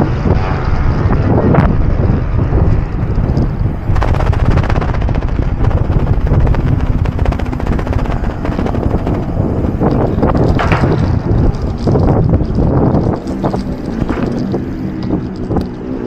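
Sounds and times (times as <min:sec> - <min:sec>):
bicycle rumbling over pavement: 0:00.0 - 0:16.0
fast clicking rattle: 0:03.0 - 0:16.0.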